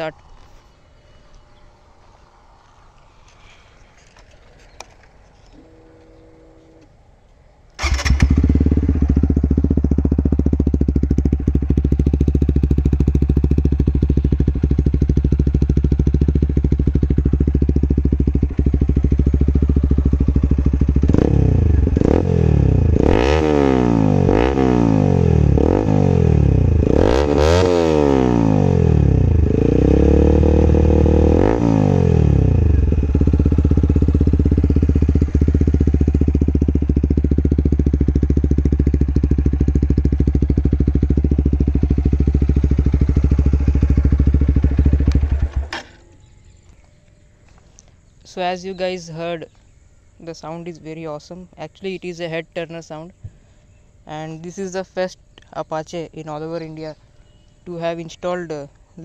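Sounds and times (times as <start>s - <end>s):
motorcycle engine starting and idling: 7.7s - 47.5s
motorcycle engine revving: 7.8s - 46.8s.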